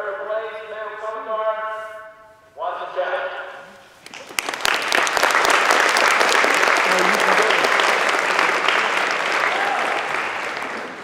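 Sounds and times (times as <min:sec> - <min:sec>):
crowd clapping: 0:04.0 - 0:11.0.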